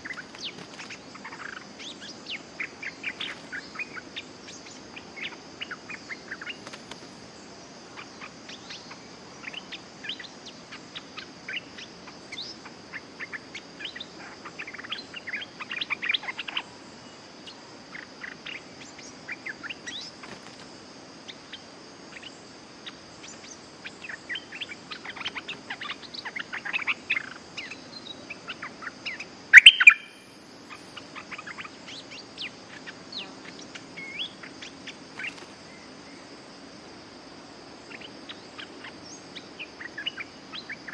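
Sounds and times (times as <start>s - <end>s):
bulbuls chirping: 0.0s - 7.0s, 21.3s - 36.2s
high insect drone: 0.0s - 40.9s.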